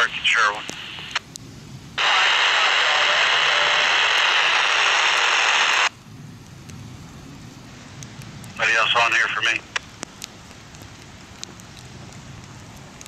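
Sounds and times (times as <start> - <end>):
radio static hiss: 0.0 - 1.3, 2.0 - 6.0, 8.5 - 9.9.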